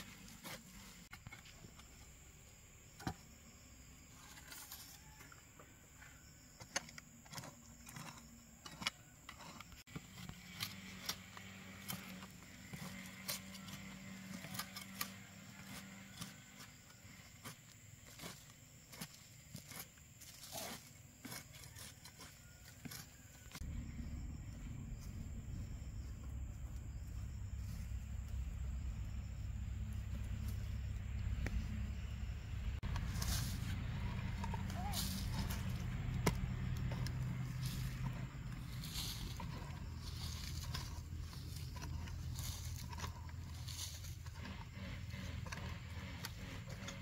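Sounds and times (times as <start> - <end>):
hoe dragging soil: 0.0 - 1.7, 6.0 - 23.8, 32.7 - 47.0
hoe chopping stony earth: 6.6 - 23.6, 32.8 - 47.0.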